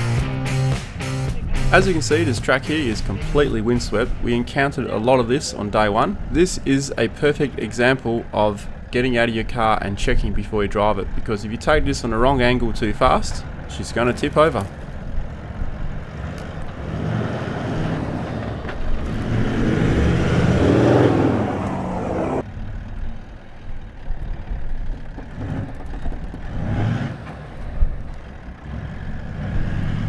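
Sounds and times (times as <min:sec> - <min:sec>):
off-road engines straining: 0:00.0 - 0:30.0
quieter engine: 0:00.0 - 0:30.0
tyres churning sand: 0:00.5 - 0:22.5.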